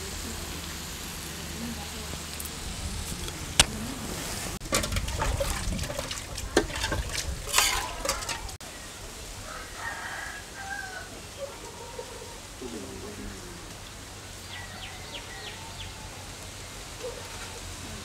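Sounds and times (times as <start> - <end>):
metal spatula scraping iron pan: 4.5 - 8.6.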